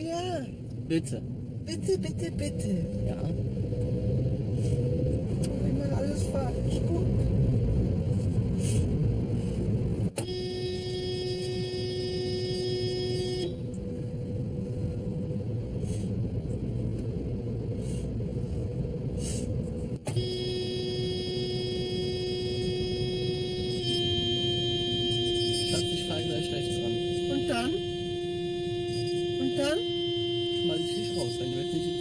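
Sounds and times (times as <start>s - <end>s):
engine and road rumble: 0.0s - 32.0s
car horn blasts: 10.2s - 14.6s, 20.0s - 32.0s.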